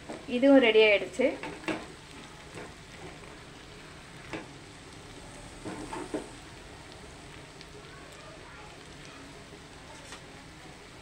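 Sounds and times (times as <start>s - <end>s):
food sizzling in a pan: 0.0s - 11.0s
spatula scraping and knocking pan: 5.6s - 6.3s.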